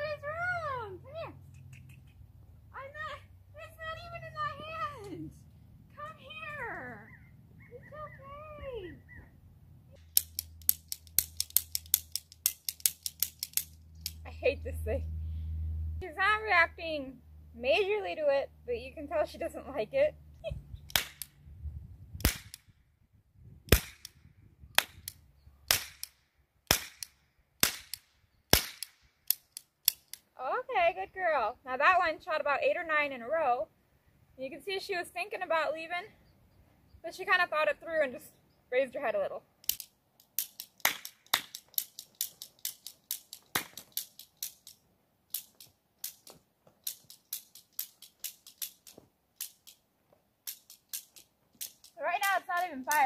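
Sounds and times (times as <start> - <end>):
toy cap gun trigger clicking: 10.0 - 14.2, 39.6 - 49.8
toy cap gun shots: 20.9 - 21.3, 22.2 - 22.6, 23.7 - 24.2, 24.8 - 30.2, 39.6 - 44.7.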